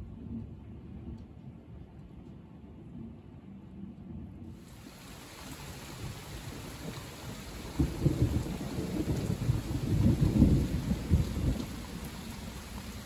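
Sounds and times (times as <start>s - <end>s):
steady rain: 4.0s - 13.0s
rolling thunder: 5.8s - 13.0s.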